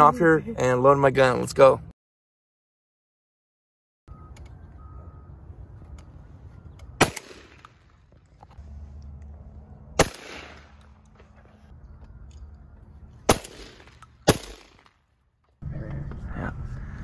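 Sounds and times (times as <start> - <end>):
shotgun shots: 7.0 - 7.9, 10.0 - 10.9, 13.3 - 15.0.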